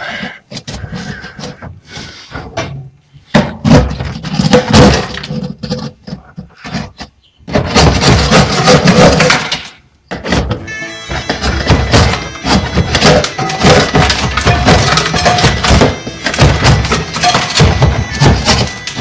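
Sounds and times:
ice being chipped and scraped: 7.7 - 9.6, 11.1 - 19.0.

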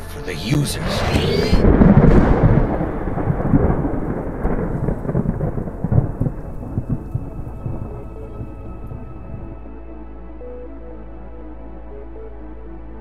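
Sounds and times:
deep rumble: 0.0 - 9.7
crackles: 0.4 - 9.6.

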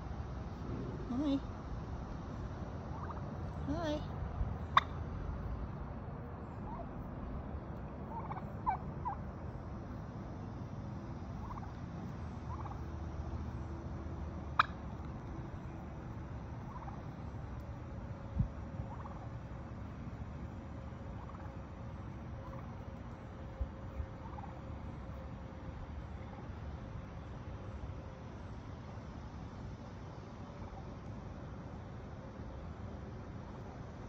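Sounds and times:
steady low rumble: 0.0 - 34.0
wild turkey calls: 2.9 - 3.5, 6.6 - 6.9, 8.0 - 9.6, 11.4 - 12.9, 14.5 - 15.9, 16.6 - 17.4, 18.8 - 19.4, 21.1 - 23.3, 23.9 - 24.6.

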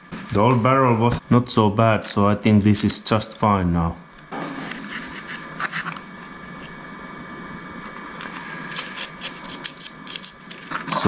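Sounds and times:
faint whining tones: 2.7 - 11.0
small metal parts clicking: 8.7 - 11.0.

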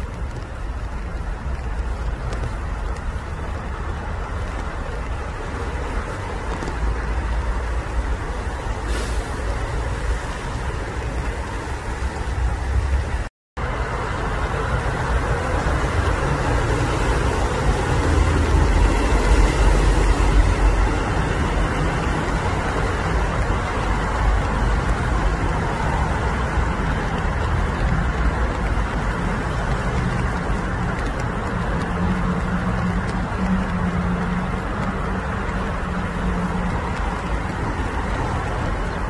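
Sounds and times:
road traffic rumble: 0.0 - 39.0.

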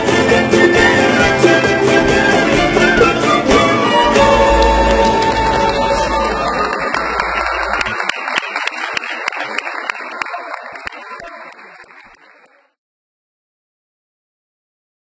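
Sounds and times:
audience applauding: 2.8 - 12.8.

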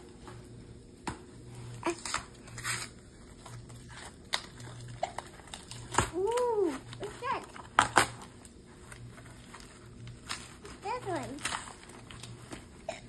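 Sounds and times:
paper mailer crackling: 1.8 - 12.8.

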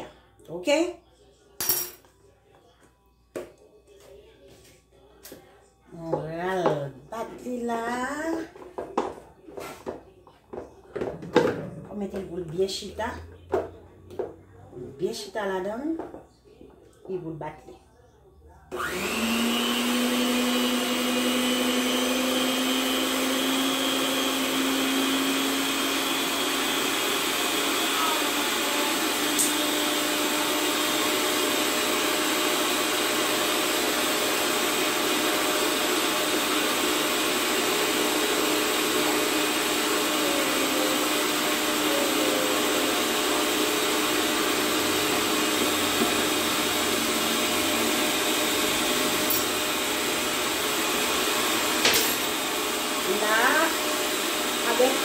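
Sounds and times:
electric hand mixer running: 18.7 - 55.0.

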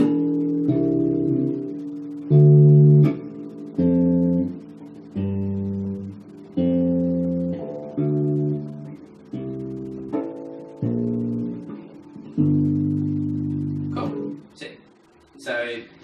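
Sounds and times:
bass guitar plucked notes: 0.0 - 14.5.

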